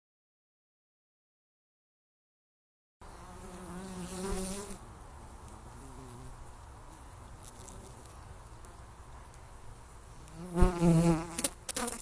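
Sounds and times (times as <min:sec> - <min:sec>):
honeybees buzzing: 0:03.0 - 0:09.0, 0:10.2 - 0:12.0.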